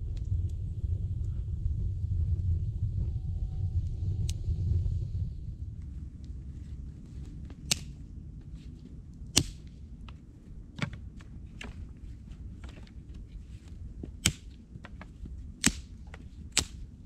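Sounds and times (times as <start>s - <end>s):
dry branches snapping: 7.1s - 10.2s, 10.8s - 17.0s.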